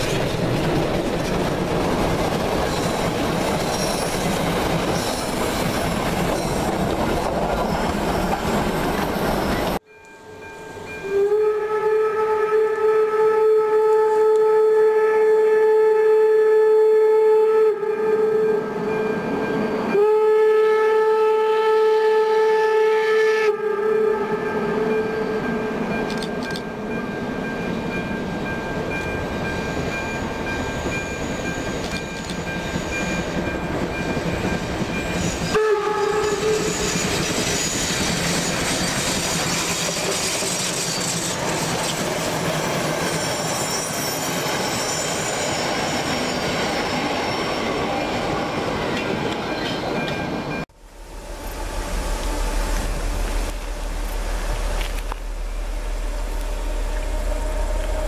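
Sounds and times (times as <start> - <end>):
train running on rails: 0.0 - 58.0
steam locomotive whistle: 9.2 - 19.1, 19.7 - 25.7, 35.1 - 41.9, 51.3 - 58.0.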